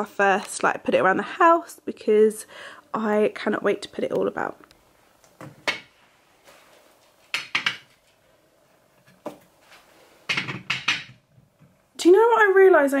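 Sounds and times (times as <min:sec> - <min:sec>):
bottles knocking and clinking on shelf: 0:07.3 - 0:08.0, 0:10.3 - 0:11.4.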